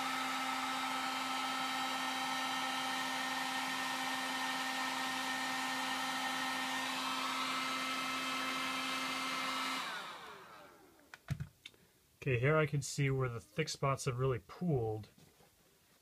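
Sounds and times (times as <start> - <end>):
heat gun blowing air: 0.0 - 11.1.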